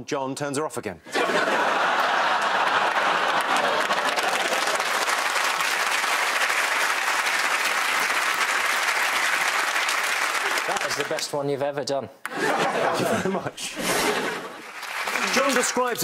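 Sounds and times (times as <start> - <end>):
audience applauding: 1.4 - 11.3, 14.0 - 16.0.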